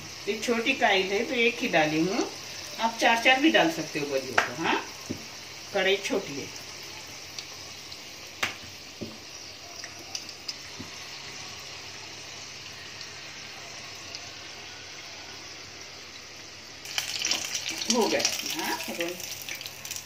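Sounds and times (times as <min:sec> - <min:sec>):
pastry deep-frying in oil: 0:00.0 - 0:20.0.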